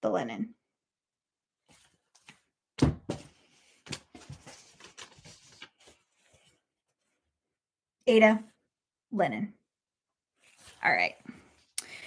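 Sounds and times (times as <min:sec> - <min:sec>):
thump: 0:02.8 - 0:03.3.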